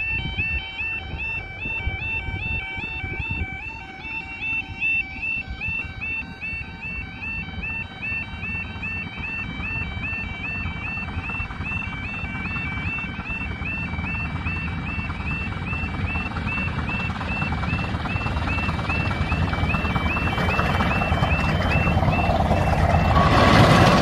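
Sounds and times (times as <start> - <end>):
level crossing alarm warbling: 0.0 - 24.0
miniature train rumble: 15.9 - 24.0.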